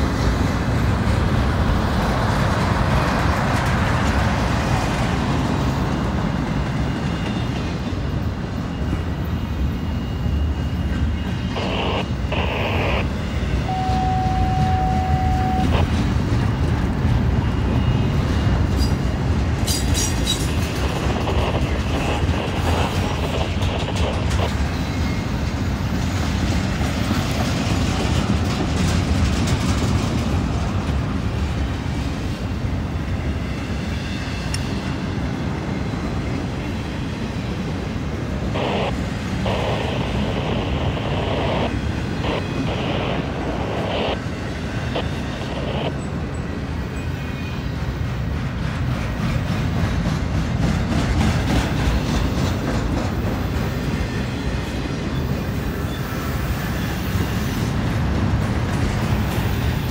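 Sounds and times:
freight train rumbling past: 0:00.0 - 0:59.9
steady whine: 0:06.5 - 0:16.5, 0:20.5 - 0:26.1, 0:37.5 - 0:47.2.

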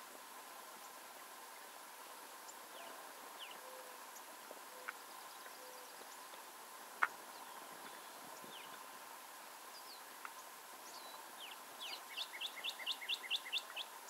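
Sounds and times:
steady hiss: 0:00.0 - 0:14.0
birds chirping: 0:02.4 - 0:09.0, 0:09.6 - 0:14.0.

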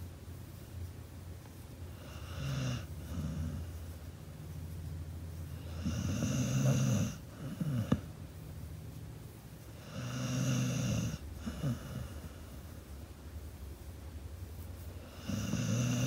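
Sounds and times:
dog snoring: 0:02.0 - 0:03.8, 0:05.6 - 0:08.1, 0:09.8 - 0:12.6, 0:15.0 - 0:16.0.

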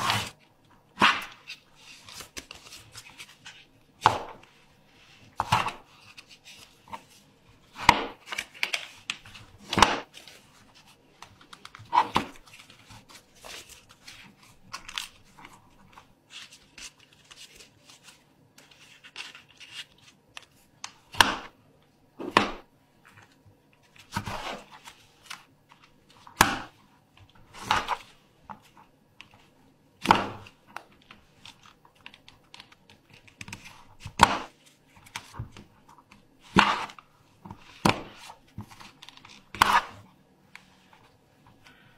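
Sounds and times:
paper being folded and creased: 0:00.0 - 0:03.8, 0:04.4 - 0:20.9, 0:30.4 - 0:41.2
faint paper rustling: 0:01.4 - 0:20.8.

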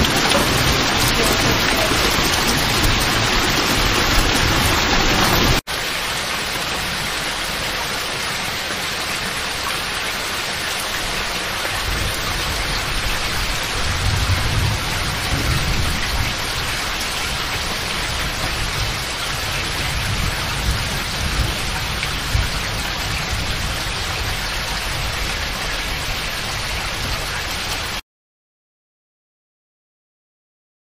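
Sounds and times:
thunder rumble: 0:00.0 - 0:05.6, 0:11.7 - 0:27.4
heavy rain pouring: 0:00.0 - 0:28.0.

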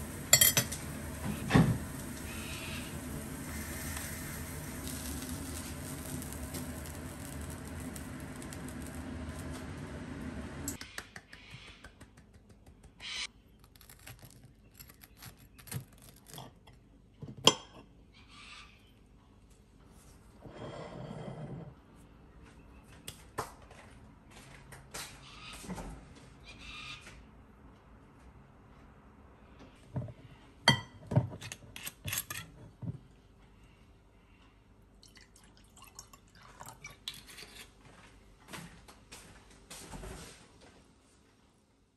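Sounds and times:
metal clinking on plate: 0:00.4 - 0:00.8
liquid pouring into glass: 0:35.0 - 0:37.0.

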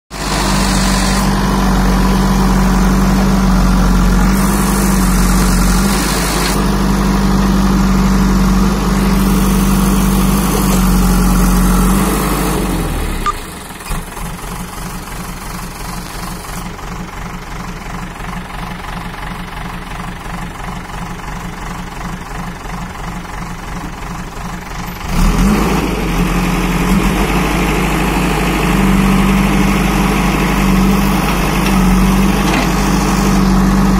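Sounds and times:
diesel engine revving: 0:00.1 - 0:16.8, 0:24.7 - 0:33.9.

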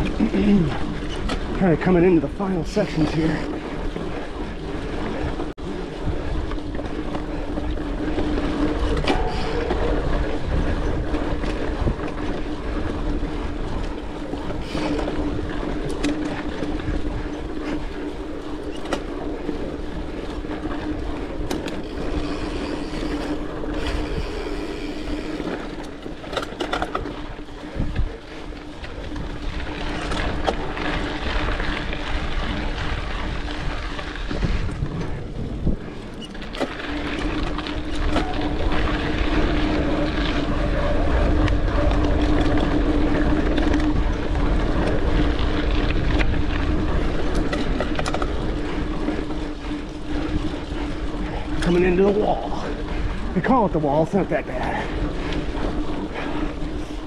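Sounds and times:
bike knocks and rattles: 0:00.0 - 0:57.0
bike tyre rumble: 0:00.0 - 0:57.0
steady hum: 0:02.6 - 0:57.0
wind on microphone: 0:21.8 - 0:25.8, 0:27.0 - 0:30.5, 0:31.2 - 0:53.4.

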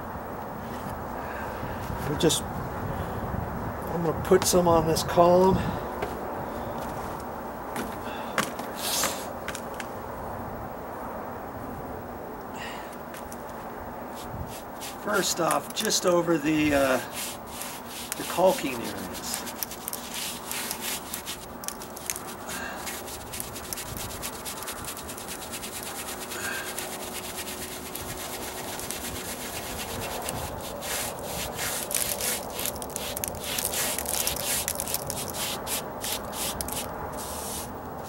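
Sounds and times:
paintbrush scrubbing stucco: 0:14.1 - 0:37.8.

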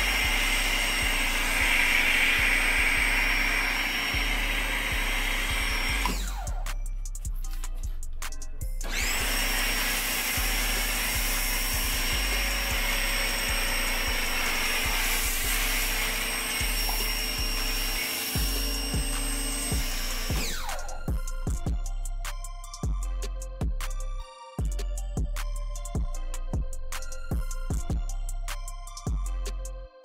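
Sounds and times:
pressure washer whining: 0:00.0 - 0:06.8, 0:08.8 - 0:21.2
background music with bass beat: 0:00.0 - 0:30.0
foam cannon spraying hiss: 0:13.4 - 0:16.0.

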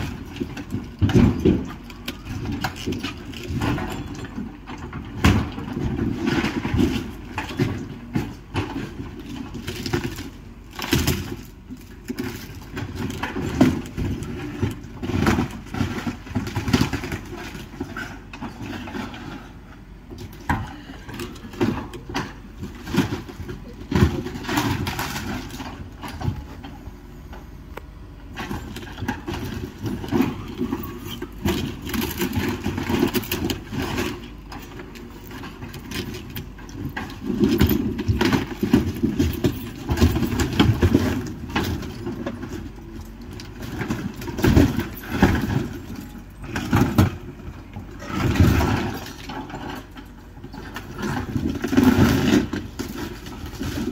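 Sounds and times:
excavator engine running: 0:00.0 - 0:53.9
debris cracking and crunching: 0:28.3 - 0:53.9.

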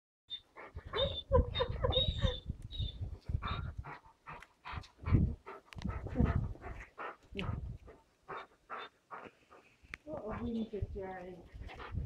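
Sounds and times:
dog whining: 0:00.3 - 0:03.6.

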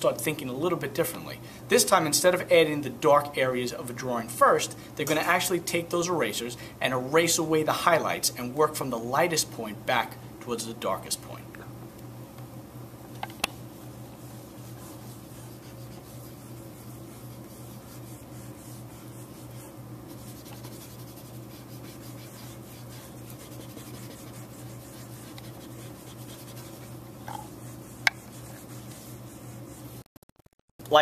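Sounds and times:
steady low hum: 0:00.0 - 0:30.1
eraser rubbing on paper: 0:14.2 - 0:30.0.

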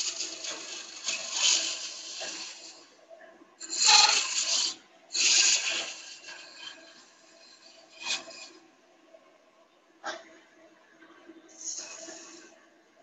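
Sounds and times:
gouge scraping spinning wood: 0:00.0 - 0:02.8.

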